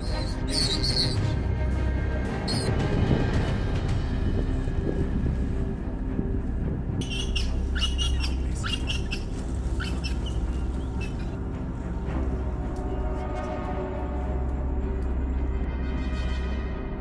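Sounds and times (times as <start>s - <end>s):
high squawking calls: 0.0s - 1.4s, 7.0s - 11.4s.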